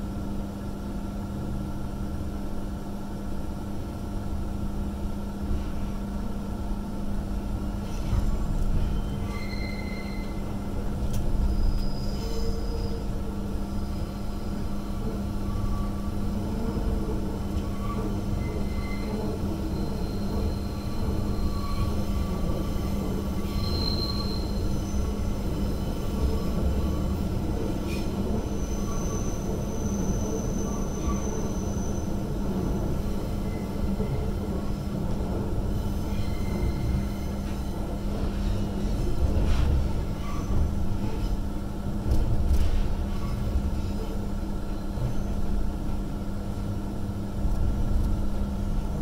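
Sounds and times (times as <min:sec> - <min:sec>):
electric train hum: 0:00.0 - 0:49.0
wheel squeals: 0:08.9 - 0:10.5, 0:11.4 - 0:13.1, 0:17.6 - 0:25.3.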